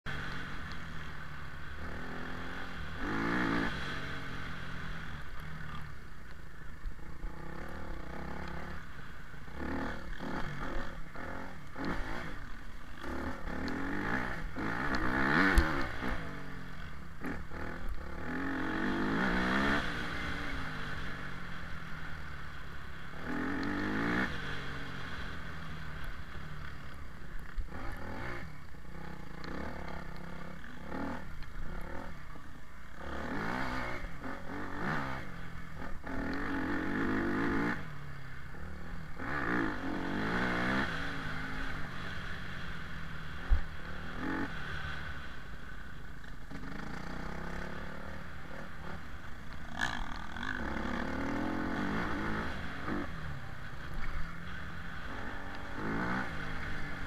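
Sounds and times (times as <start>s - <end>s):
motorbike engine revving: 1.4s - 5.9s, 7.0s - 21.7s, 33.0s - 45.4s, 46.4s - 57.0s.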